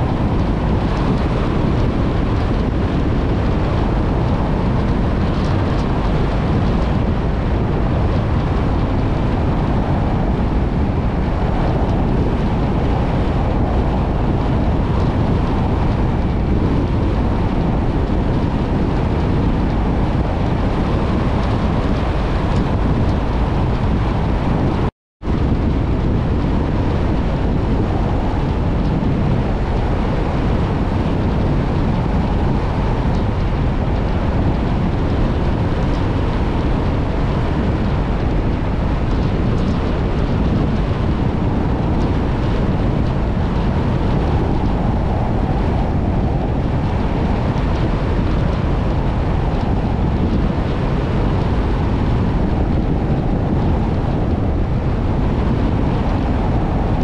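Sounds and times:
wind: 0.0 - 57.0.

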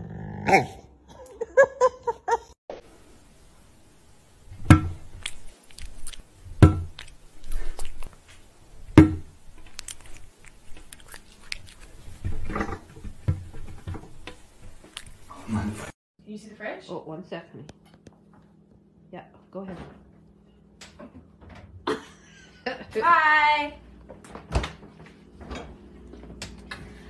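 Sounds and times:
sharp clicks or crunches: 5.1 - 8.2, 9.5 - 12.0.

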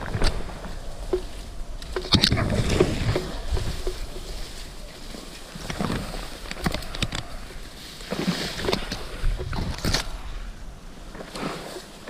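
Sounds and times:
twigs snapping: 0.0 - 10.3
brush rustling and scraping: 0.0 - 12.0.

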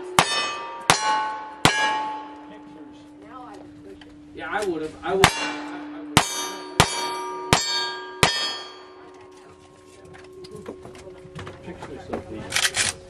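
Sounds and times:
steel target ringing: 0.0 - 3.4, 4.5 - 10.0.

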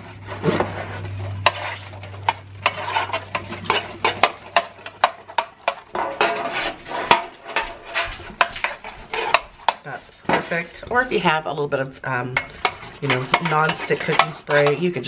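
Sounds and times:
metal spoon scraping metal pan: 0.0 - 11.5, 12.1 - 15.0.

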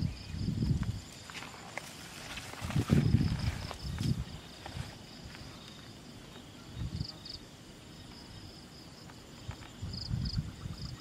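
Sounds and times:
insects chirping: 0.0 - 11.0
low rustling bumps: 0.7 - 5.4.

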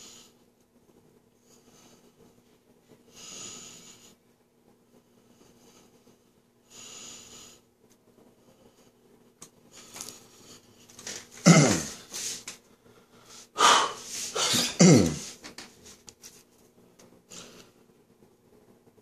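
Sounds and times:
person making throaty vocal noises: 11.4 - 12.0, 13.6 - 15.4
breathy burst: 13.5 - 15.4.

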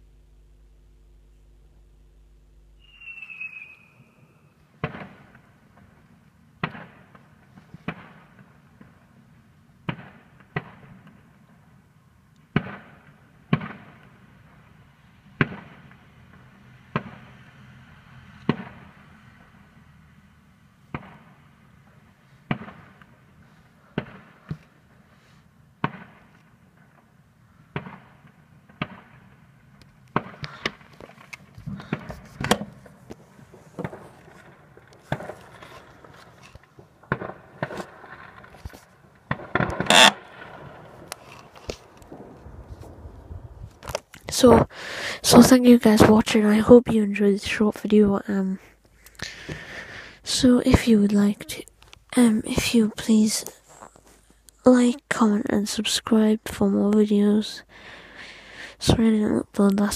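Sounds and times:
falling firework whistle: 2.8 - 4.7
fireworks bangs: 2.8 - 6.0, 6.6 - 9.2, 9.8 - 11.3, 12.5 - 19.6, 20.9 - 25.1, 25.8 - 46.2.

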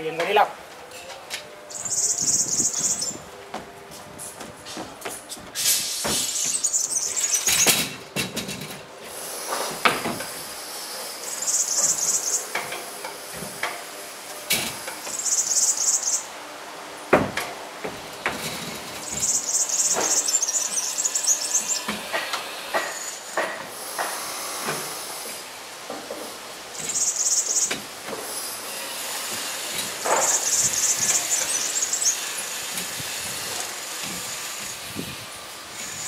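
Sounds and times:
high-pitched chirping: 1.7 - 3.2
footsteps on wooden ramp: 1.8 - 6.7.

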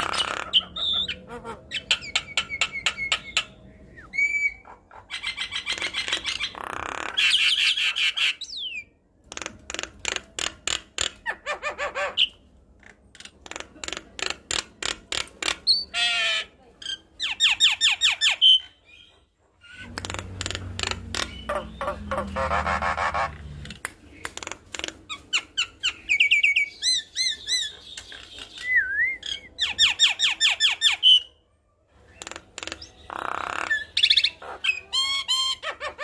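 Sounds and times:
bird singing clicking rattling notes: 19.7 - 22.5.

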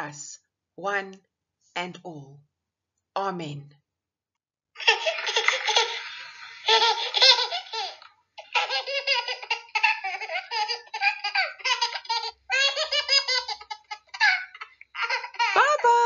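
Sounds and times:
baby laughing: 4.8 - 15.8.

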